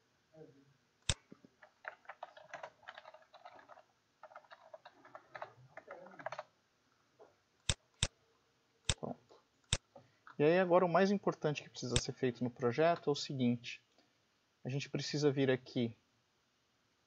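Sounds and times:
keyboard typing: 1.1s - 6.5s.

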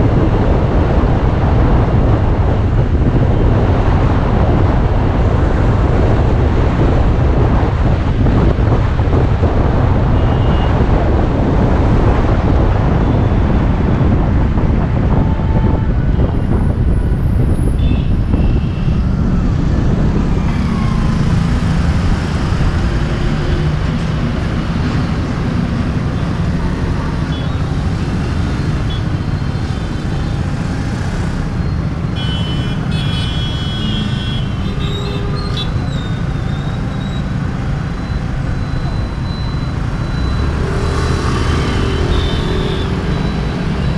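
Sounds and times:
road traffic: 0.0s - 43.9s
wind rumbling on camera: 0.0s - 43.9s
vehicle horn beeps: 10.2s - 10.8s, 17.8s - 19.0s, 32.2s - 37.2s, 41.6s - 43.3s.

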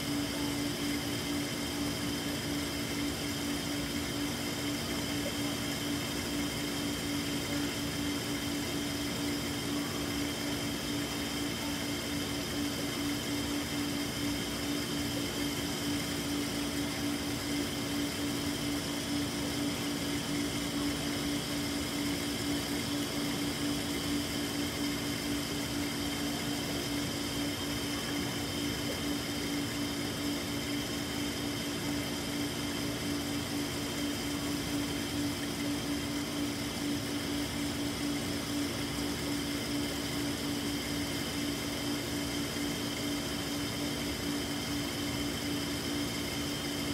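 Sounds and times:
aquarium pumps and filters humming: 0.0s - 46.9s.

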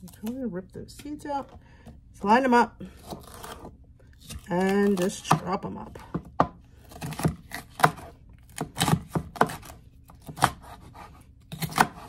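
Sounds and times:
knife chopping on cutting board: 3.0s - 12.0s.

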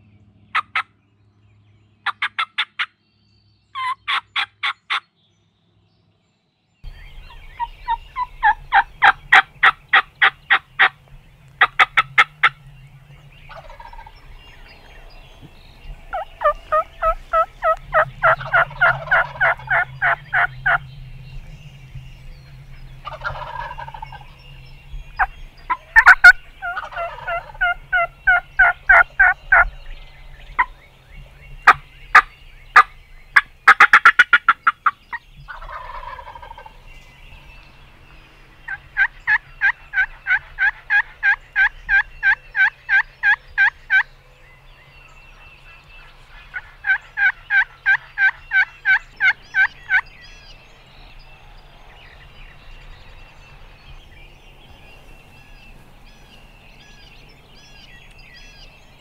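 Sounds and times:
turkey gobbling: 2.0s - 2.9s, 3.8s - 5.0s, 7.0s - 20.8s, 23.0s - 24.4s, 25.1s - 30.8s, 31.6s - 36.8s, 38.7s - 44.1s, 45.4s - 50.5s
turkey yelping: 2.0s - 2.9s, 3.8s - 5.0s, 7.3s - 10.9s, 11.6s - 12.6s, 13.5s - 14.2s, 16.1s - 20.8s, 23.0s - 24.2s, 25.7s - 29.7s, 31.6s - 36.8s, 38.7s - 44.1s, 46.3s - 50.0s.

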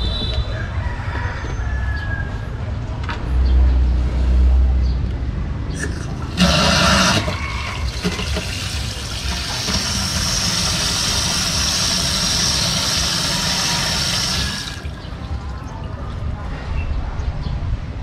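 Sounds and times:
water hissing through valve: 5.8s - 15.0s
water splash into tank: 5.8s - 16.0s.

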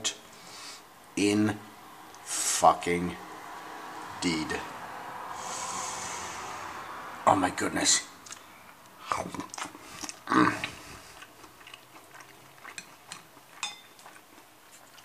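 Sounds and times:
short vocal sounds: 5.4s - 6.8s
person chewing: 8.2s - 15.0s.

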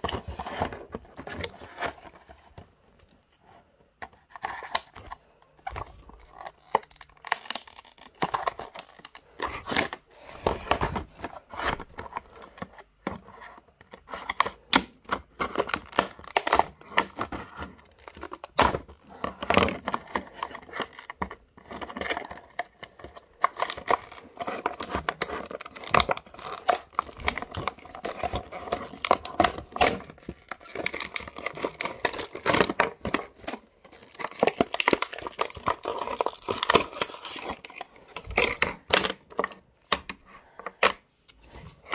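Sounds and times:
plastic packaging crinkling: 4.5s - 11.2s, 15.6s - 39.6s.

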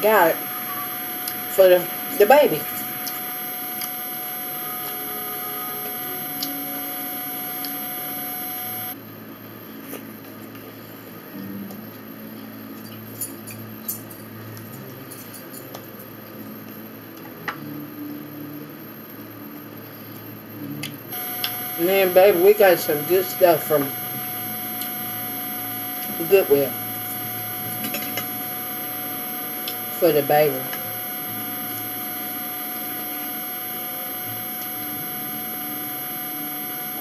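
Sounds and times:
steady hum: 0.0s - 9.0s, 17.6s - 37.0s.

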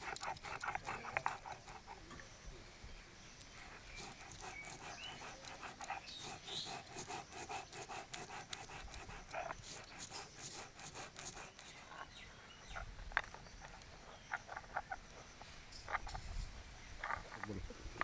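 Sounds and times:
stone grinding scraping: 0.0s - 2.0s, 3.4s - 16.2s.

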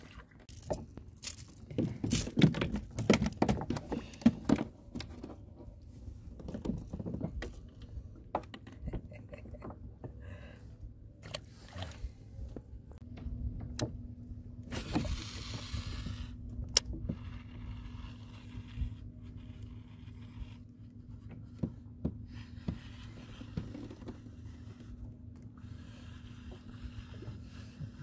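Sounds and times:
steady low hum: 9.1s - 28.0s.

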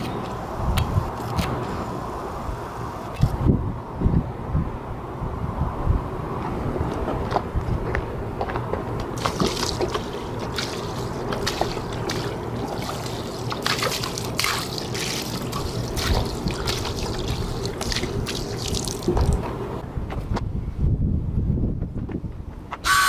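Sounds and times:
water splashing onto asphalt: 9.2s - 19.5s.

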